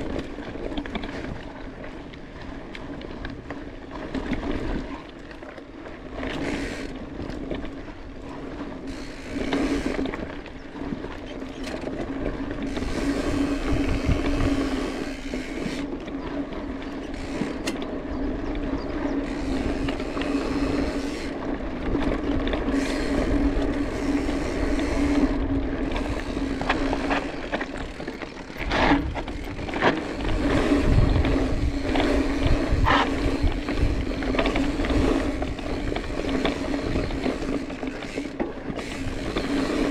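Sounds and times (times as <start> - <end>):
bike rattling over bumps: 0.0 - 39.9
bike tyres rolling on trail: 0.0 - 39.9.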